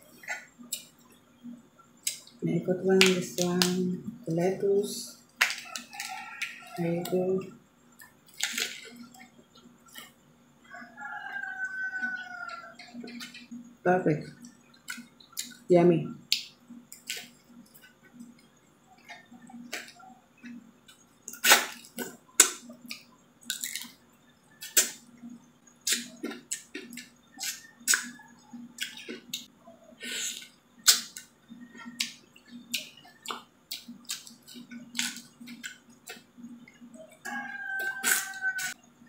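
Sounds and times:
person chewing wetly: 0:14.4 - 0:15.7, 0:16.3 - 0:25.0, 0:25.7 - 0:29.5, 0:30.3 - 0:38.8.

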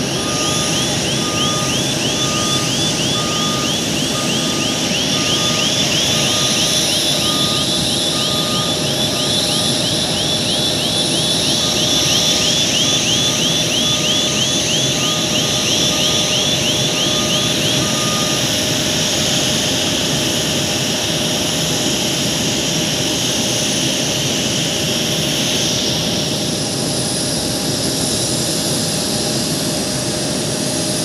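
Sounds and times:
high steady tones: 0:00.0 - 0:18.5
on-off beeping: 0:00.0 - 0:18.6
jet turbine whine: 0:00.0 - 0:31.0
rising electronic chirps: 0:00.1 - 0:18.4.

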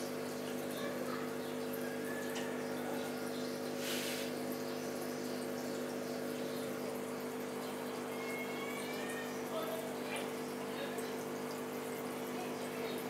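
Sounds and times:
filter pump humming: 0:00.0 - 0:13.0
water trickling and bubbling: 0:00.0 - 0:13.0
brief hiss: 0:03.8 - 0:04.4.

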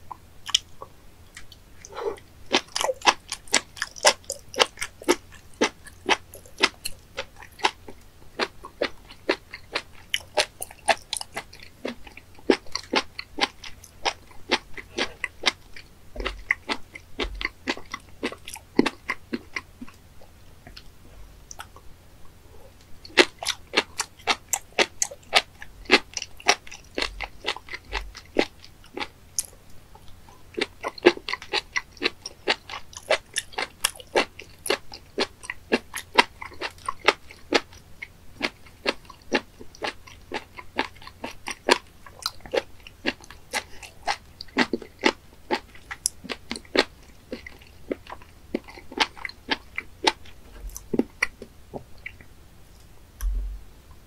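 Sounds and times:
crisp crunchy chewing: 0:00.1 - 0:53.5.

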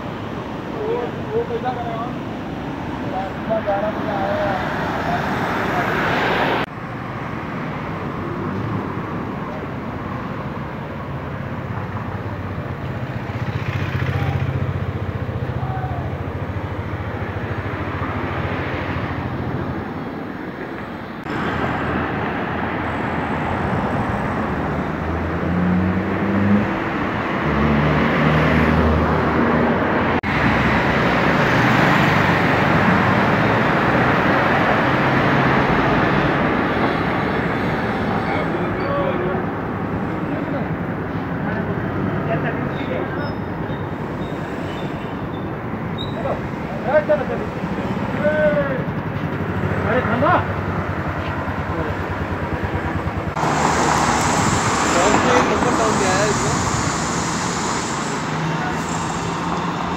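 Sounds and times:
street traffic: 0:00.0 - 0:59.9
engine changing pitch: 0:43.7 - 0:59.9.

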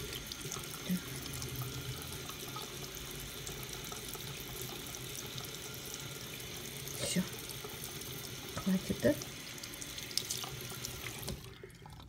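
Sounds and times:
tap water splashing on drain: 0:06.4 - 0:11.6.

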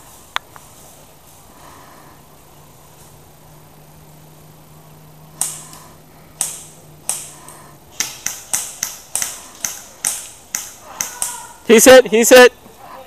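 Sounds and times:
airsoft guns firing: 0:05.4 - 0:05.8, 0:06.4 - 0:11.9.

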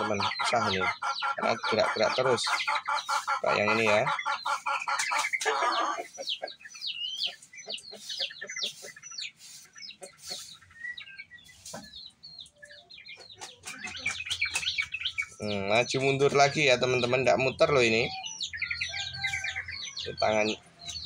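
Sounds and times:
birds chirping: 0:00.0 - 0:21.0.

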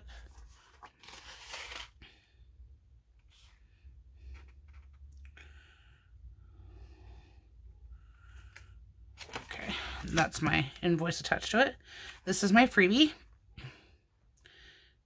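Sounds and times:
paper and card rustling: 0:00.1 - 0:02.0, 0:04.2 - 0:05.1, 0:09.1 - 0:11.2.

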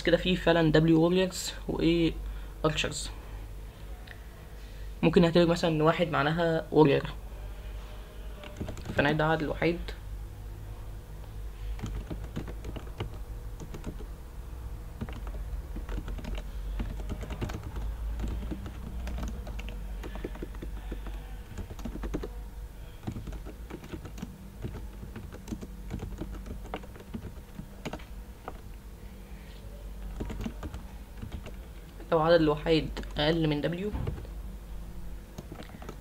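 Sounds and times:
low steady hum: 0:00.0 - 0:36.0
keyboard typing: 0:08.4 - 0:09.2, 0:11.7 - 0:14.2, 0:14.9 - 0:22.4, 0:23.0 - 0:28.8, 0:30.0 - 0:32.1, 0:35.3 - 0:36.0.

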